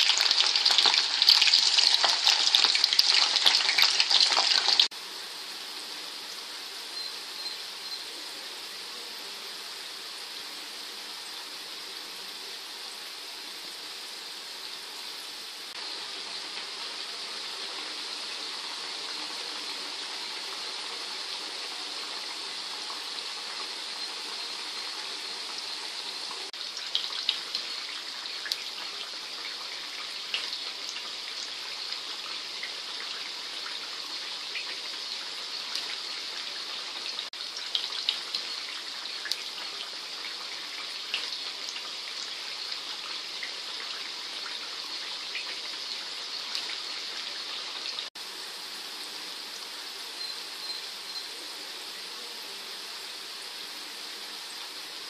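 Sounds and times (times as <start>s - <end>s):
oil crackling and popping: 0.0s - 4.9s, 22.4s - 48.0s
potato strips sizzling in hot oil: 0.0s - 55.0s.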